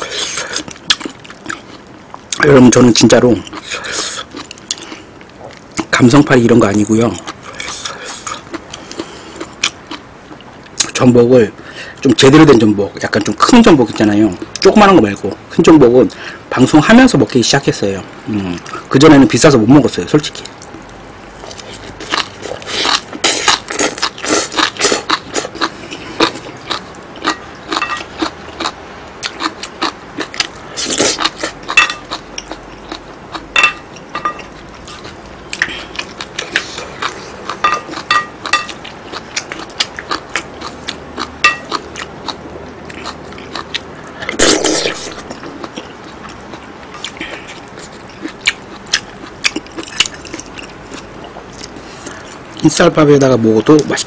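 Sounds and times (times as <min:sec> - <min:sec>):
wet chewing: 0:20.4 - 0:52.7
spoon scraping and clinking plate: 0:33.6 - 0:34.5
noisy bursts: 0:40.0 - 0:47.8.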